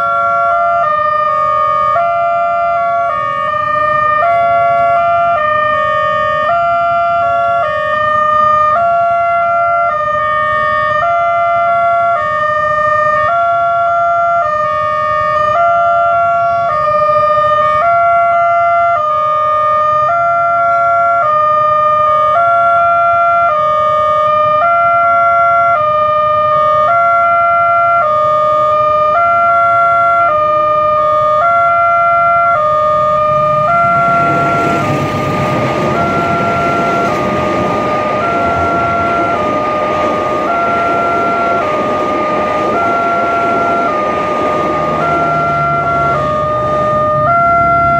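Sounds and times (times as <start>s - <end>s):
level crossing two-tone alarm: 0.0s - 47.9s
approaching train rumble: 30.6s - 47.9s.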